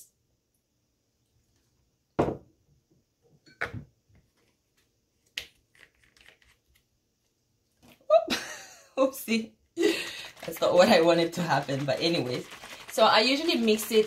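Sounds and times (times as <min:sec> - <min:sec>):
sharp knocks on wooden table: 0:02.2 - 0:02.5.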